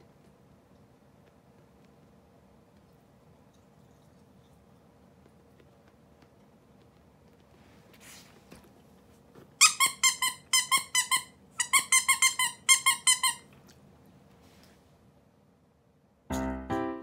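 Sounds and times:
toy squeaking: 9.6 - 13.5.

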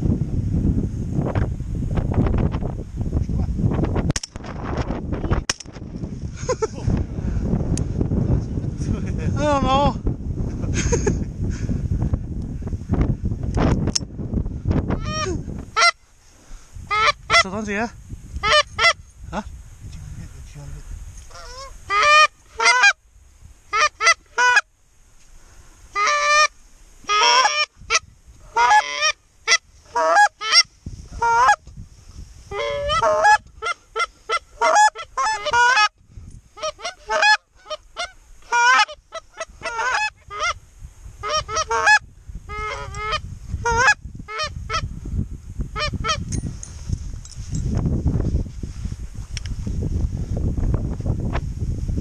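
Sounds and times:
goose honking: 15.0 - 16.0, 16.9 - 17.4, 18.4 - 19.0, 21.3 - 23.0, 23.7 - 24.6, 26.0 - 26.5, 27.1 - 31.6, 32.5 - 35.9, 36.6 - 40.6, 41.2 - 44.8.

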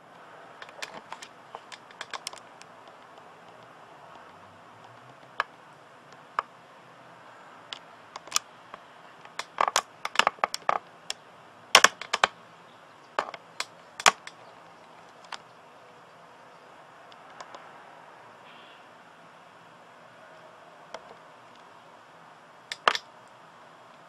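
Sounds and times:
faint steady hiss: 0.0 - 24.0
camcorder handling clicks: 22.7 - 23.0.

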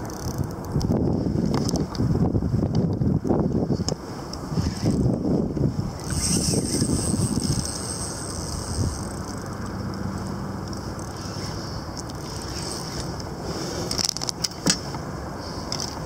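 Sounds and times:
water noise: 0.0 - 16.0
wind: 0.0 - 16.0.

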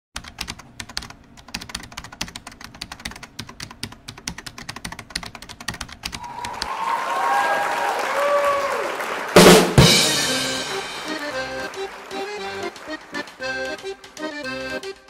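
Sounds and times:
keyboard typing: 0.2 - 6.6, 11.1 - 15.0
music with held tone: 9.8 - 15.0.

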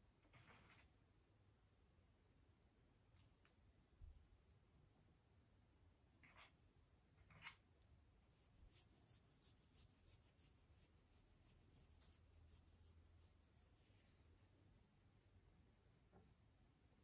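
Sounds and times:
hand stroking dog's coat: 8.3 - 17.0.

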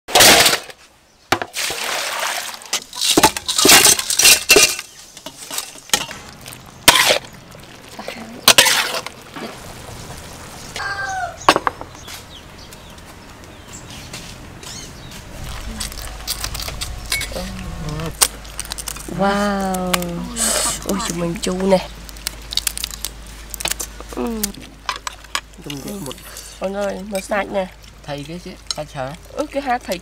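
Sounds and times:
food splashing into bowls: 1.4 - 10.5.

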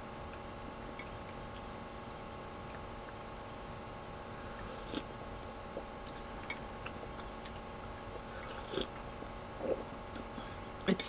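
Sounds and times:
faint steady hum: 0.0 - 11.0
person chewing: 4.5 - 10.4.

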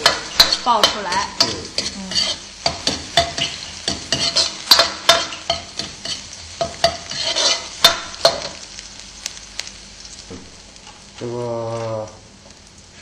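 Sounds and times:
metal ladle scraping wok: 0.0 - 8.4
food sizzling in oil: 0.0 - 13.0.

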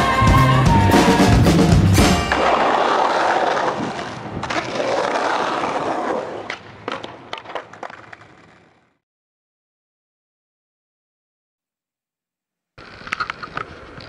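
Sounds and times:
skateboard wheels rolling on concrete: 0.8 - 9.0, 12.8 - 14.0
skateboard clacks: 2.3 - 8.9.

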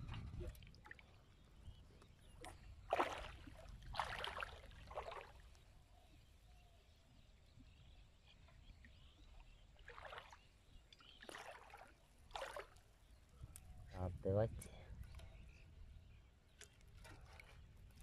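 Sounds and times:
small water splashes: 0.0 - 1.4, 2.0 - 5.7, 8.4 - 13.2, 16.5 - 18.0.

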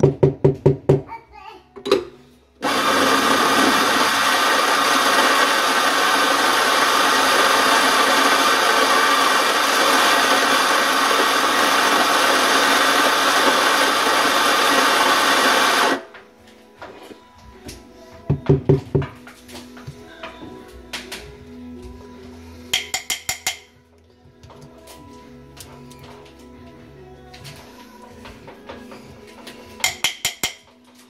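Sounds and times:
coffee grinder grinding beans: 2.6 - 16.1.

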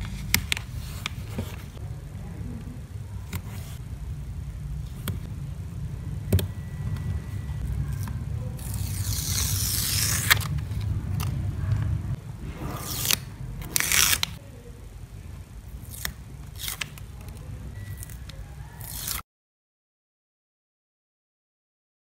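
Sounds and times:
steady low hum: 0.0 - 18.8
adhesive tape ripping off paper: 8.0 - 11.3, 12.8 - 14.4, 15.8 - 17.0, 18.8 - 19.2.

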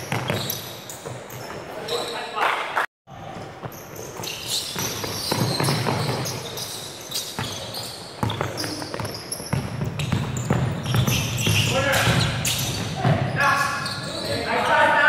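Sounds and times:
basketball bouncing on wooden floor: 0.0 - 1.3, 3.6 - 6.4, 8.2 - 13.4
sneakers squeaking: 0.0 - 15.0.

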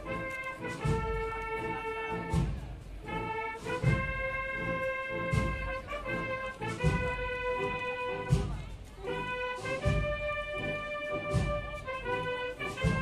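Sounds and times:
bass drum beat: 0.0 - 13.0
brass band playing slow march: 0.0 - 13.0.

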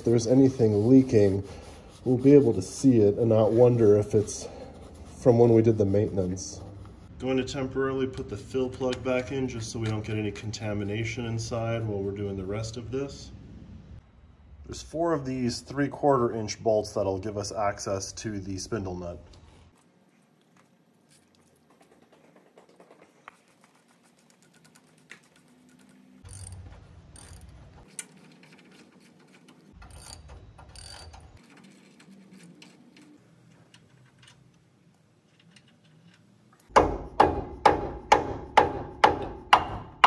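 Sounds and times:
ratchet wrench clicking: 26.2 - 31.4.

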